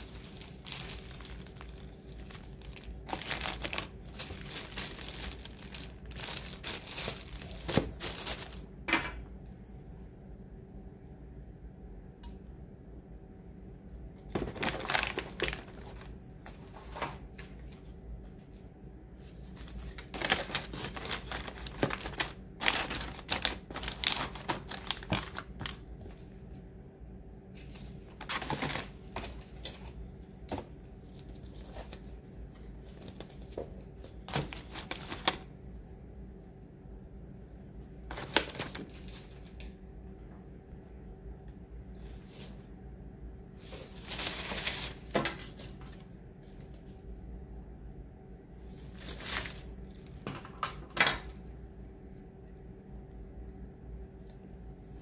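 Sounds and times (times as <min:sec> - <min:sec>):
plastic wrap crinkling: 0:00.0 - 0:08.8, 0:14.3 - 0:18.0, 0:19.2 - 0:26.4, 0:27.5 - 0:35.5, 0:38.1 - 0:39.7, 0:43.6 - 0:46.8, 0:48.6 - 0:50.4.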